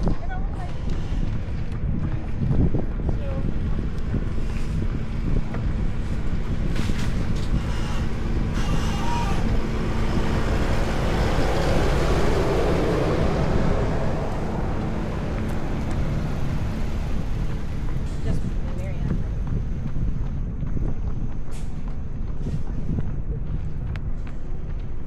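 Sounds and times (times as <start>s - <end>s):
wind rumble on microphone: 0.0s - 25.0s
vehicle passing by: 3.5s - 19.6s.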